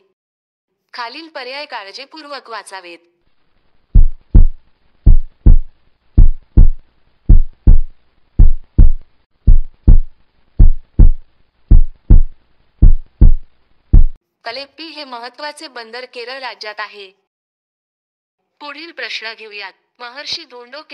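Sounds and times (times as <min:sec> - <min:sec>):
heartbeat double thump: 0:04.0 - 0:14.2.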